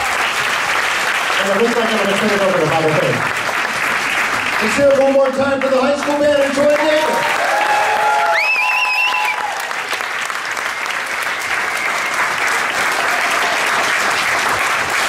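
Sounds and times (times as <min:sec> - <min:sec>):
audience applauding: 0:00.0 - 0:15.0
shrill crowd whistle: 0:07.8 - 0:09.7, 0:10.4 - 0:13.4.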